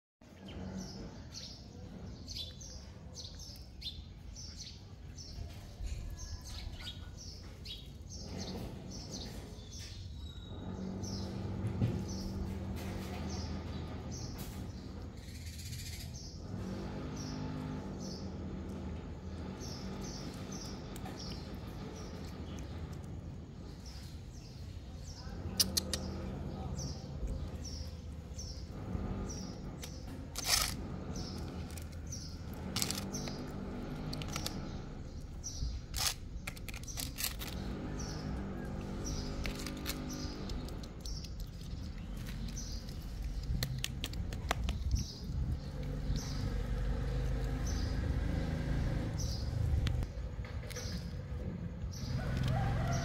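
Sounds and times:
small birds chirping: 0.2s - 53.0s
low background rumble: 0.7s - 53.0s.

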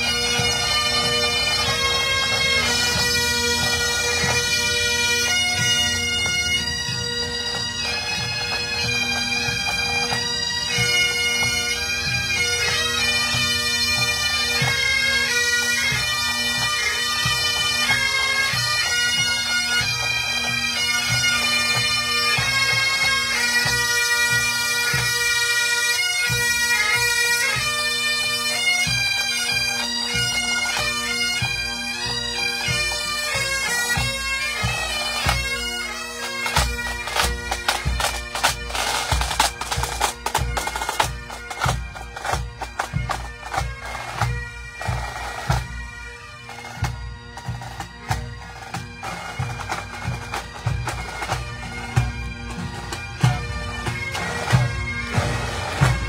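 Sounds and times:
bagpipes playing: 0.0s - 56.0s
drums beating time: 49.4s - 56.0s.

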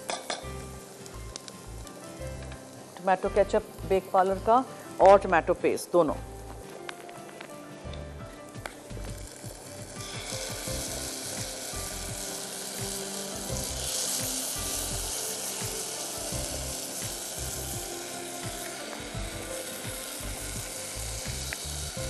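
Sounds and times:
sauce sizzling in hot oil: 0.0s - 6.8s, 7.9s - 22.0s
quiet background music: 0.0s - 22.0s.

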